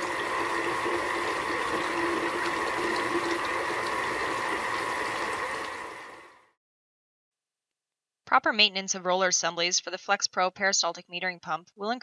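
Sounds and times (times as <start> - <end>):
water pouring: 0.0 - 6.5.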